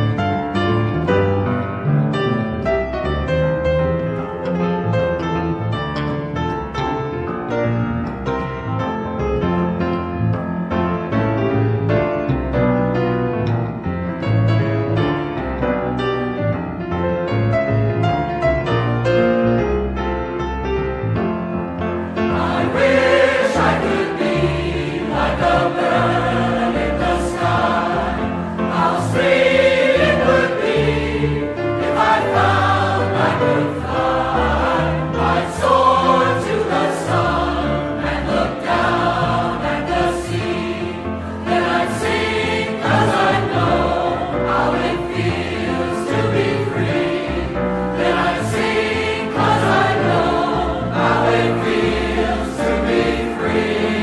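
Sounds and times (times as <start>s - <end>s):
musical accompaniment: 0.0s - 54.0s
choir singing: 22.0s - 54.0s.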